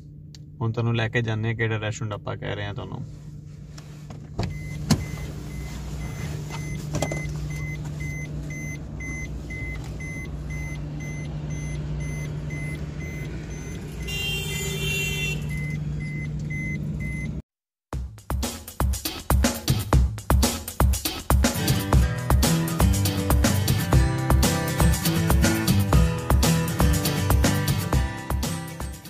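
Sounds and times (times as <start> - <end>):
car engine idling: 3.1 - 17.1
car warning chime beeping: 4.5 - 17.4.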